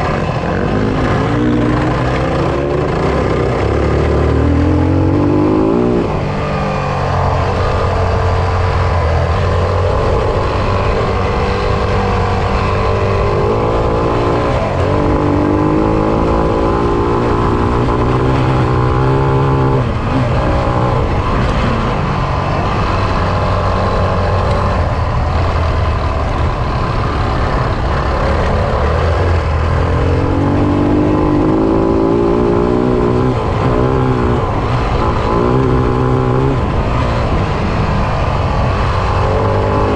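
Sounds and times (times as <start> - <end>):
motorcycle engine revving: 0.0 - 39.9.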